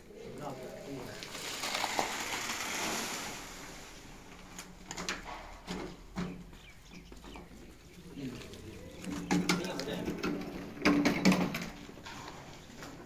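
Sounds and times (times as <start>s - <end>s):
wet concrete sliding out: 0.2s - 6.4s, 7.2s - 13.0s
wheelbarrow knocking and clattering: 4.8s - 7.7s, 8.9s - 12.2s.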